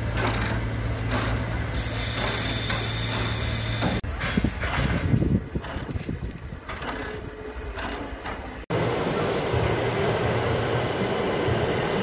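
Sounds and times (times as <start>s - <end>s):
steam locomotive running gear clanks: 0.0s - 8.7s.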